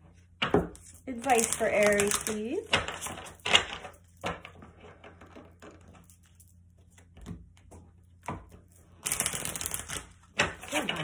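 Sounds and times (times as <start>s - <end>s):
cards being shuffled: 0.8s - 4.0s.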